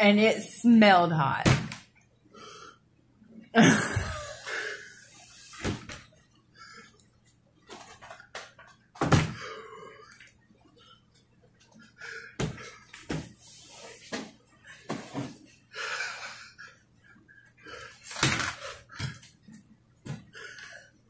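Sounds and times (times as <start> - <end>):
man breathing hard: 15.7 - 19.4.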